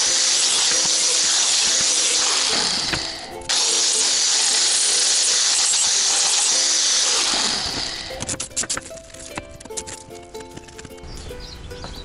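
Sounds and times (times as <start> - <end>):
power tool cutting metal sheet: 0.0 - 8.3.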